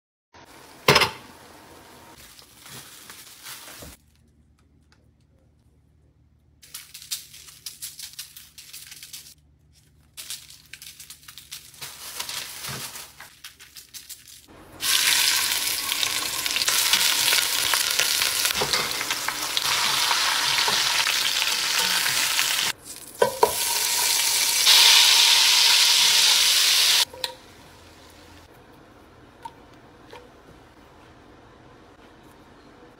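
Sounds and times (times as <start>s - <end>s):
crackling handling noises: 2.2s - 14.5s
chicken sizzling in hot oil: 14.8s - 22.8s, 23.4s - 27.1s.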